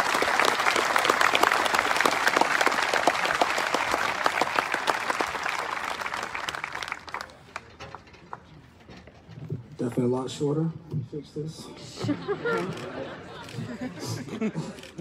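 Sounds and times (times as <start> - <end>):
crowd applauding: 0.0 - 7.7.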